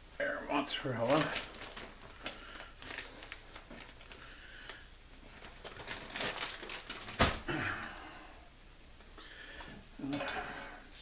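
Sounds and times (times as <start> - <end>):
plastic bag crinkling: 0.5 - 7.5.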